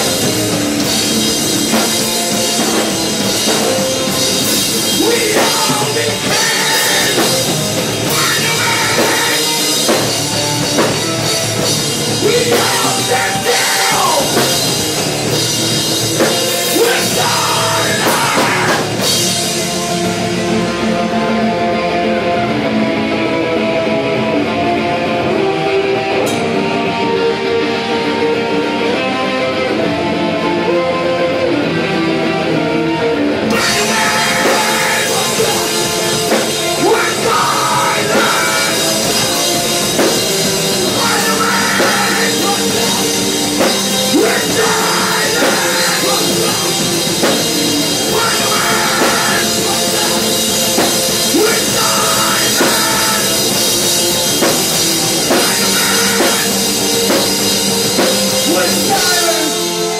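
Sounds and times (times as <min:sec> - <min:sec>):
drum kit and cymbals: 0:00.0 - 0:20.8, 0:33.5 - 0:59.9
bass guitar: 0:00.0 - 0:59.9
electric guitar: 0:00.0 - 0:59.9.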